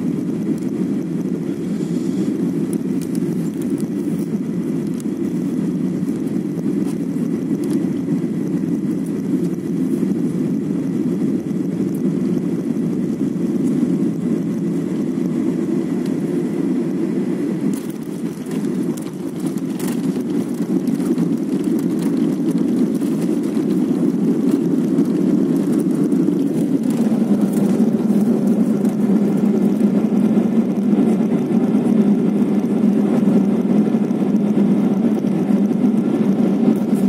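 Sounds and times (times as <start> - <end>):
jet engines and wheels rumbling: 0.0 - 37.0.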